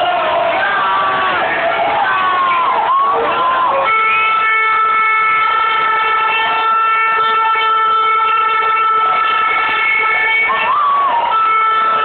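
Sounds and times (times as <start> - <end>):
crowd noise: 0.0 - 12.0
horn blown on steady note: 3.8 - 12.0.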